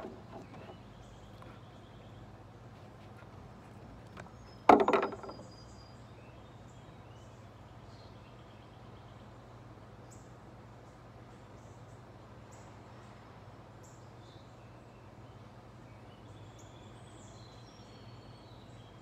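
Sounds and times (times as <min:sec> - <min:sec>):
toy clattering on wooden deck: 0:00.0 - 0:01.6, 0:02.9 - 0:05.6.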